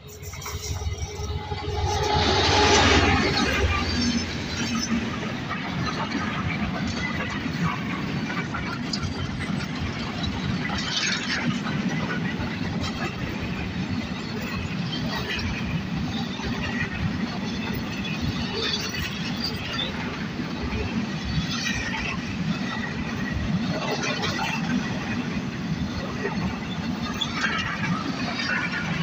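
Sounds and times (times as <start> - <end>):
train wheels rumbling on rails: 0.0 - 29.0
high-pitched wheel squeal: 0.1 - 5.0.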